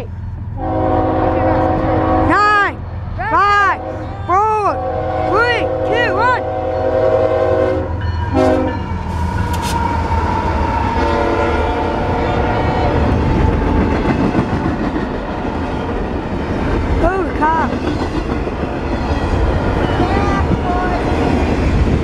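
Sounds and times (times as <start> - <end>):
train rumbling and clattering: 0.0 - 22.0
train horn: 0.6 - 2.4, 3.7 - 9.0, 10.4 - 13.9.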